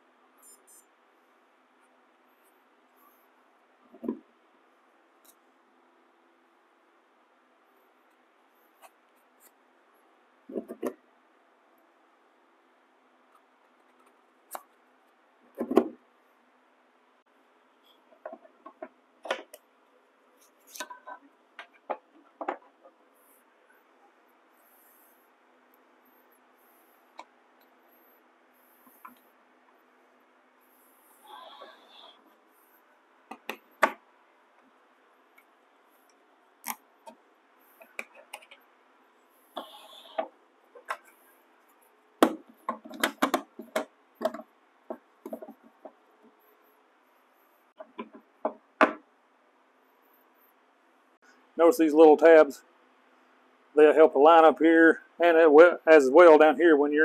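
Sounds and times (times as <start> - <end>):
plastic inserts clicking and knocking: 42.2 - 44.4.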